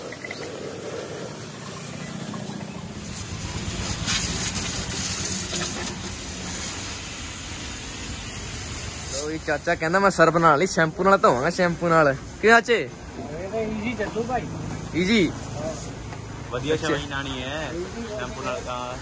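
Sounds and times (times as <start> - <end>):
engine humming: 0.0 - 9.1
pressure washer jet spraying: 1.1 - 17.4.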